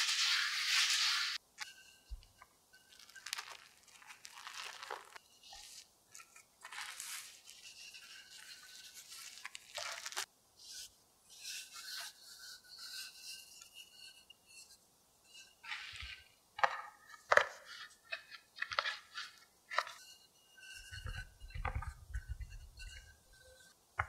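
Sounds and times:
cling film crinkling: 2.8s - 7.7s, 8.4s - 10.3s.

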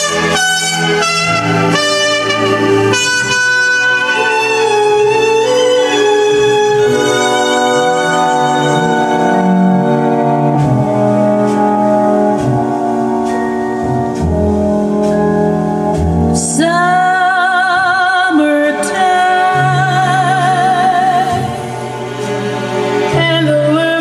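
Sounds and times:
held instrumental notes: 0.0s - 24.0s
solo singer with wide vibrato: 16.3s - 24.0s.

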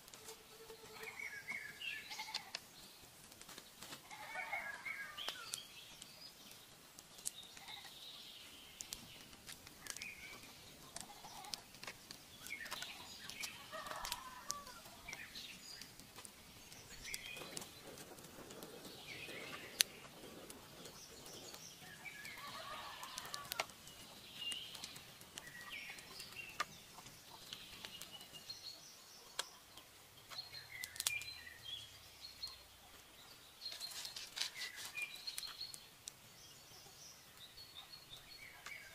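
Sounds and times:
bird calls: 0.2s - 2.7s, 7.2s - 38.9s.

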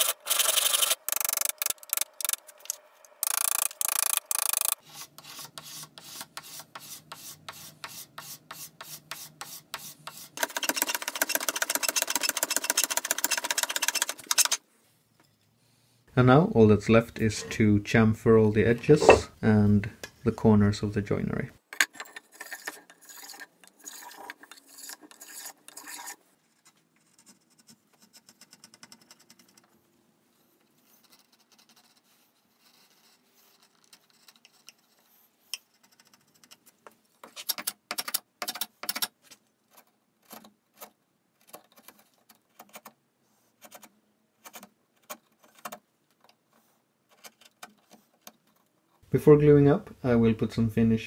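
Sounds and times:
chisel scraping wood: 18.9s - 19.4s.

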